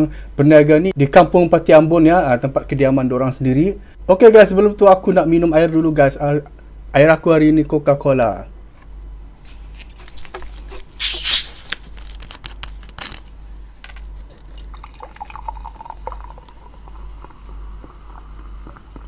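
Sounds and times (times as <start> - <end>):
bottle cap opening with fizzing hiss: 11.0 - 11.8
cola pouring into a mug: 13.9 - 19.0.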